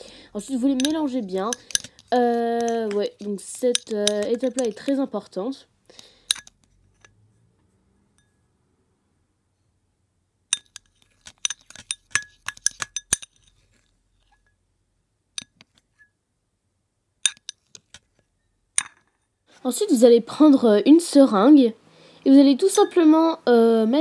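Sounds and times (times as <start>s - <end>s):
metal fork clinking against glass bowl: 0.5s - 5.0s, 6.3s - 6.6s, 10.5s - 13.4s, 17.2s - 17.7s.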